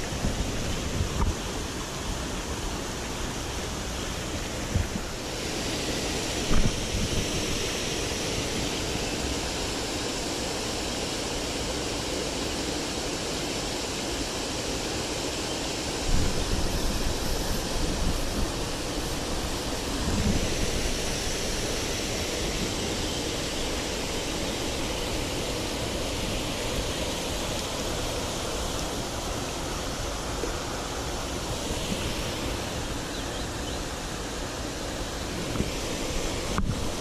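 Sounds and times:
water rushing over weir: 0.0 - 37.0.

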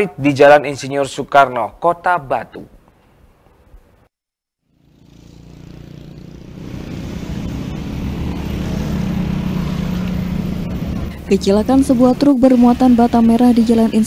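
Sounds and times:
car and motorcycle engines: 4.6 - 14.0.

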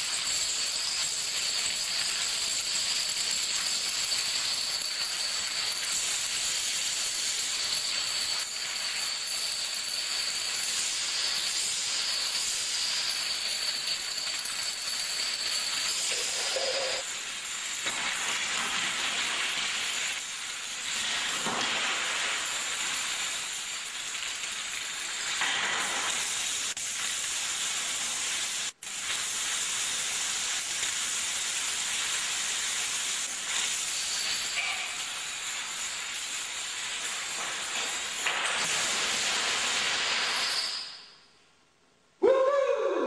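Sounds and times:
dominoes toppling: 0.8 - 20.2.

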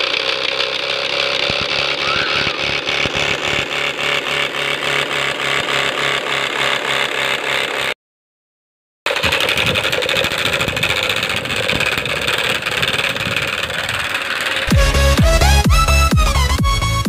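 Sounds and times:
plastic bottle rattling on bicycle wheel: 9.1 - 14.7.

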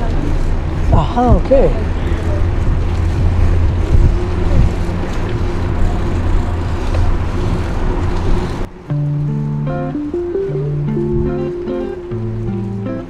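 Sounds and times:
bicycle riding rumble: 0.0 - 13.0
wind buffeting microphone: 0.0 - 13.0
music with held notes: 8.9 - 13.0.

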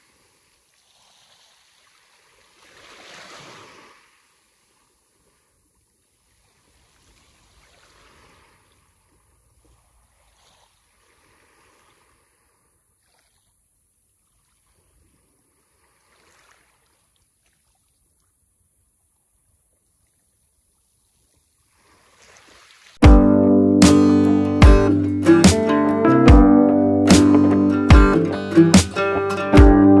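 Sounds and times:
faint sea waves washing in: 0.0 - 13.6, 14.3 - 17.6.

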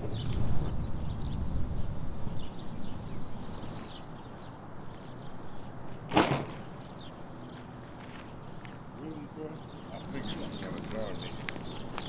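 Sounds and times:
dumpster lid slamming shut: 6.1 - 6.8.

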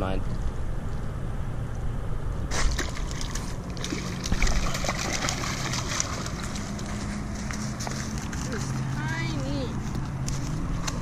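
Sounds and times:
stingray splashing in shallow water: 2.5 - 8.8.

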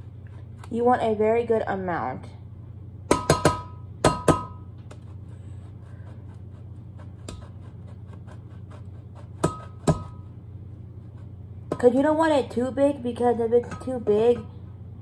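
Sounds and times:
knife ticking through cheese: 5.7 - 10.2.

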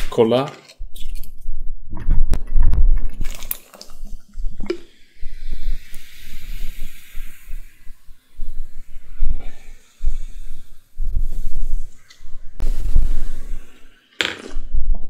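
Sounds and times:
cola pouring into glass: 3.2 - 4.9
carbonation fizzing hiss: 3.2 - 14.2.

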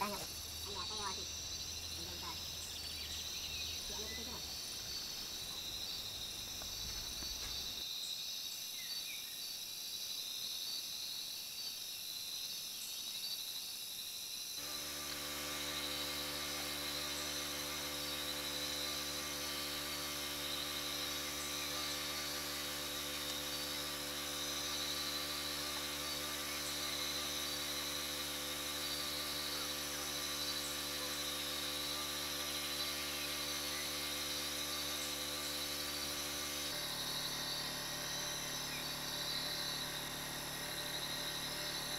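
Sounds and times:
insects buzzing: 0.0 - 41.9
steady low hum: 14.6 - 41.9.

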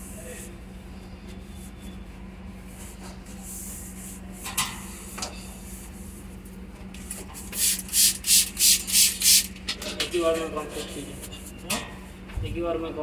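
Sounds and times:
spray bottle squirts: 7.4 - 9.6.

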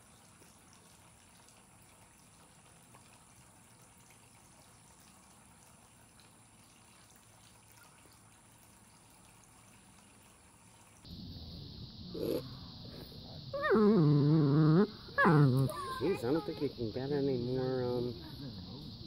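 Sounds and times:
small water splashes: 0.0 - 11.1
faint steady hiss: 0.0 - 19.0
thin high whine: 11.1 - 18.9.

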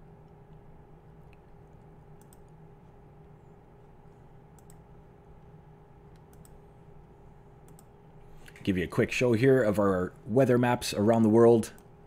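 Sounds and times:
low steady hum: 0.0 - 12.0
computer mouse clicks: 1.2 - 2.6, 4.5 - 4.9, 6.1 - 6.6, 7.6 - 8.6.

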